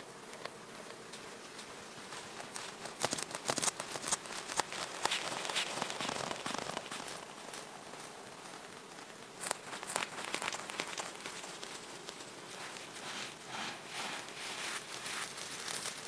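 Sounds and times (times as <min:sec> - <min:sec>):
twigs crunching underfoot: 0:09.4 - 0:16.0.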